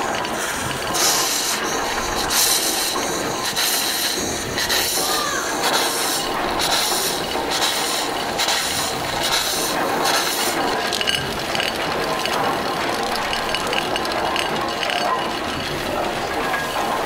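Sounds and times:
steam engine hissing: 0:00.0 - 0:14.9.

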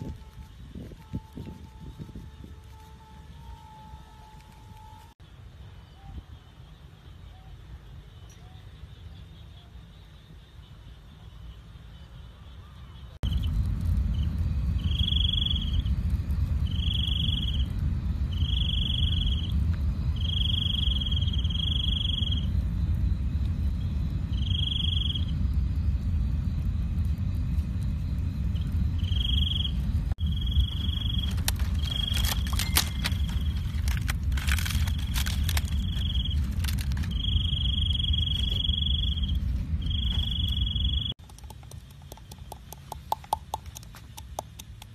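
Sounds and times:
sharp crackles: 0:00.0 - 0:05.2, 0:13.2 - 0:44.9
insects trilling: 0:00.0 - 0:44.9
steady low rumble: 0:13.2 - 0:44.9.

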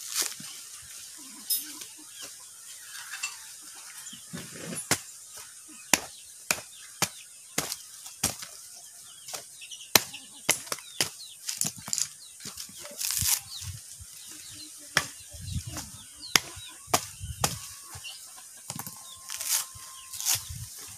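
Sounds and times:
machete chopping coconut husk: 0:04.7 - 0:08.6, 0:09.3 - 0:13.6, 0:14.9 - 0:18.1, 0:18.7 - 0:20.6.

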